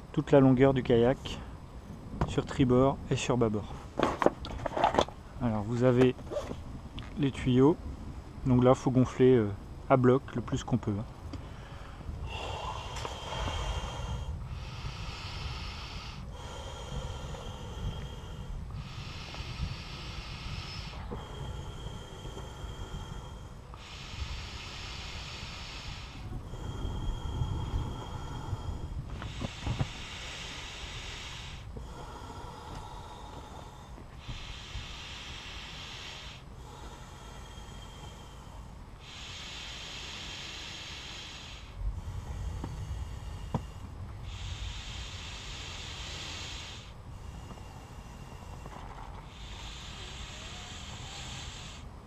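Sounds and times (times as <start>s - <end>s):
breath drawn in: 11.4s - 52.0s
air blown through inflation tube: 12.2s - 52.0s
air blown into tube: 39.0s - 51.9s.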